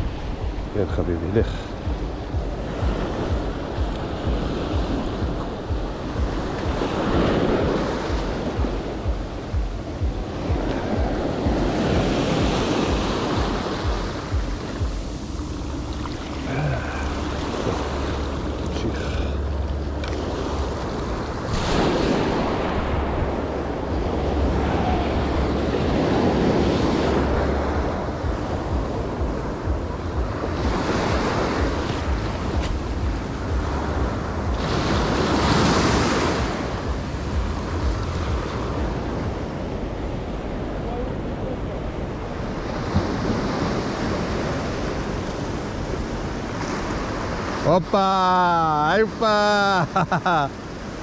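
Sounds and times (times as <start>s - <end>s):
wind buffeting microphone: 0.0s - 47.6s
surf breaking on rocky shore: 0.0s - 51.0s.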